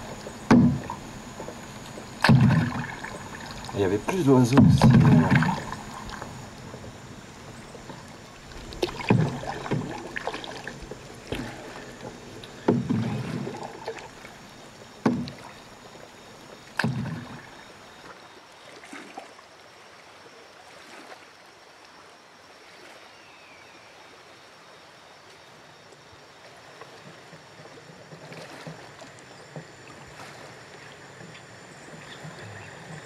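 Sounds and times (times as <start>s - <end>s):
sharp knocks on boat: 0.0s - 7.0s, 8.7s - 13.9s, 15.0s - 15.6s, 16.7s - 17.5s
paddle splashing in water: 0.0s - 22.0s, 26.4s - 33.0s.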